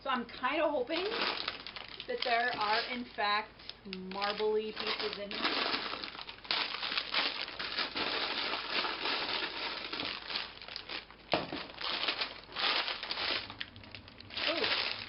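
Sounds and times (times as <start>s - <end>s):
plastic bags crinkling: 0.6s - 15.0s
plastic bricks shifting: 4.2s - 15.0s.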